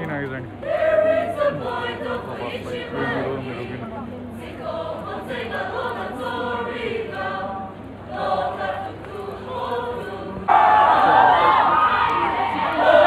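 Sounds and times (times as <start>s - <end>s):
group singing a folk chant: 0.6s - 13.0s
voices shouting: 10.5s - 13.0s.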